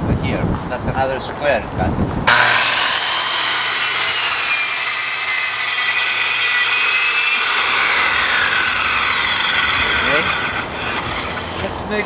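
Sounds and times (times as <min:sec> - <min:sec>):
circular saw cutting plywood: 0:02.3 - 0:11.9.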